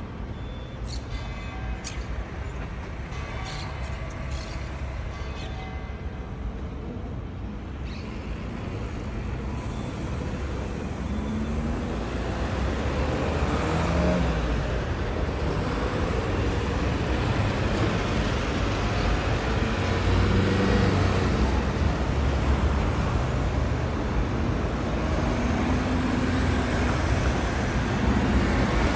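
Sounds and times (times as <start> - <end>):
cars and lorry driving past: 8.1 - 28.9.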